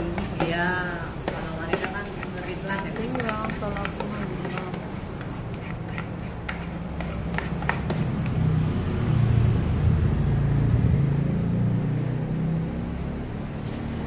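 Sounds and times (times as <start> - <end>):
spatula knocking on metal hopper: 0.0 - 8.4.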